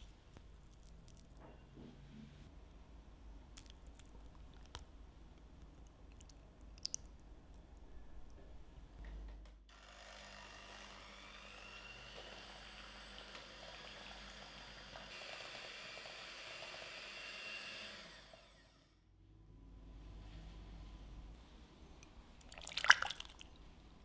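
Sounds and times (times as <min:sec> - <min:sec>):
electric hand mixer whining: 0:09.8 - 0:18.8.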